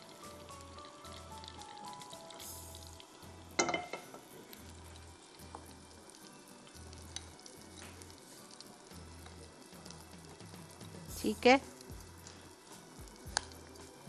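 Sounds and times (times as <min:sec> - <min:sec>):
background music with low beat: 0:00.0 - 0:14.0
faint crackling hiss: 0:00.0 - 0:14.0
metal clinking on glass bowl: 0:03.6 - 0:04.2.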